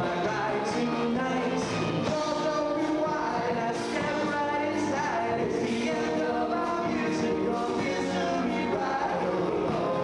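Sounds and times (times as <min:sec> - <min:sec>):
acoustic guitars strummed: 0:00.0 - 0:10.0
man singing: 0:00.0 - 0:10.0.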